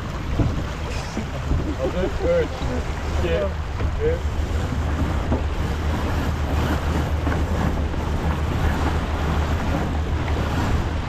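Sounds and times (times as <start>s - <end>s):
water rushing along hull: 0.0s - 11.0s
wind buffeting microphone: 0.0s - 11.0s.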